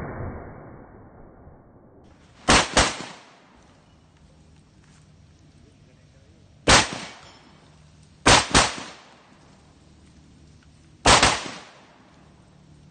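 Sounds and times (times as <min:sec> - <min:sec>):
shotgun shots with echo: 0:02.5 - 0:03.4, 0:06.7 - 0:07.4, 0:08.2 - 0:09.2, 0:11.0 - 0:11.9.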